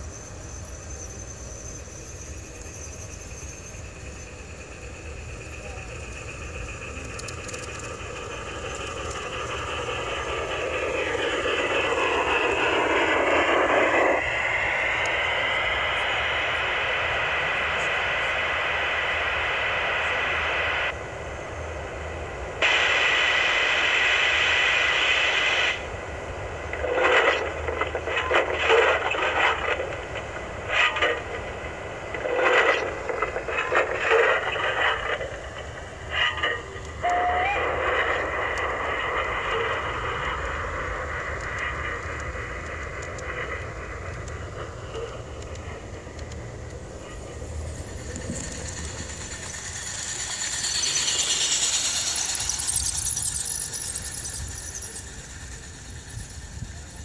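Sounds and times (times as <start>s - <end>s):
model train motor whirr: 0.0s - 16.8s, 32.3s - 57.0s
train wheels clattering on track: 0.0s - 18.2s, 25.6s - 57.0s.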